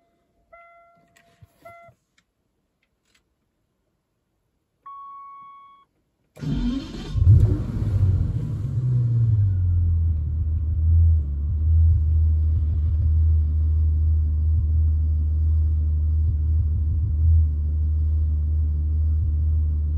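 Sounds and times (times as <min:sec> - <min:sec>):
car engine idling: 0:06.4 - 0:19.9.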